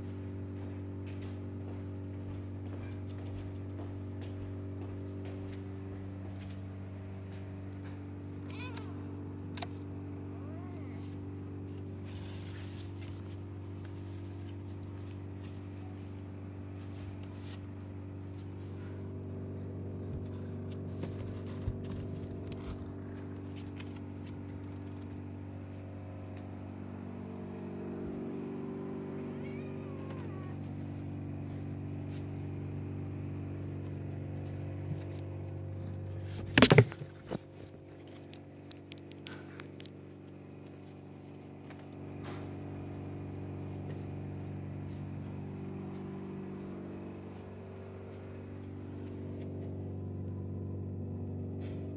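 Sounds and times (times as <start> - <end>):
low mechanical hum: 0.0 - 51.9
paw knocking cardboard: 36.4 - 37.5.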